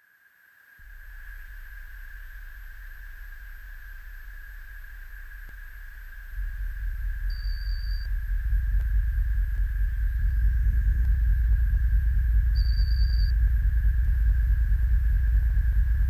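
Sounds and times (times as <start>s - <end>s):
low rumbling drone: 0.8s - 16.0s
high whistle-like tone: 7.3s - 8.1s, 12.5s - 13.4s.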